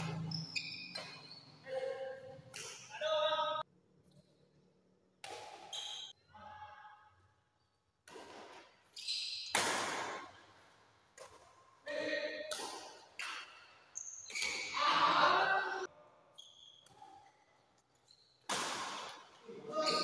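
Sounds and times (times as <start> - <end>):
shoe squeaks on tiled floor: 0.0 - 1.7, 5.7 - 6.1, 8.9 - 9.6, 13.9 - 14.8, 16.3 - 16.8, 18.0 - 18.4, 19.8 - 20.0
racket striking shuttlecock: 2.5 - 2.9, 5.2 - 6.1, 8.0 - 8.8, 9.4 - 10.4, 11.1 - 11.6, 12.3 - 13.6, 18.4 - 19.3.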